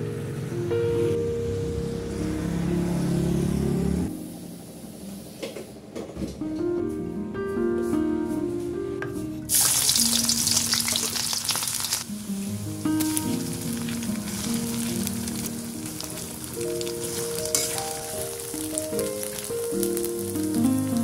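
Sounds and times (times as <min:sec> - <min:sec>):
soft background music: 0:00.0 - 0:11.4, 0:12.0 - 0:21.0
food sizzling in hot oil: 0:09.5 - 0:21.0.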